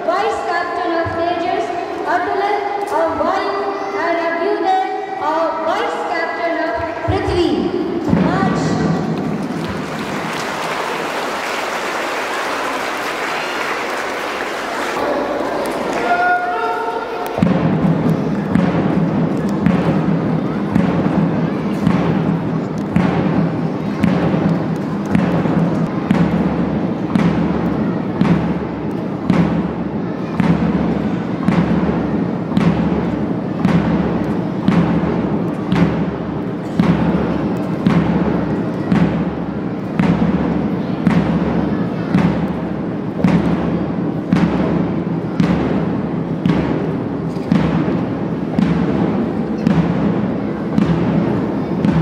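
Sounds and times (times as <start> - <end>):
marching drum beat: 7.2 - 10.8, 17.3 - 29.8, 30.4 - 52.0.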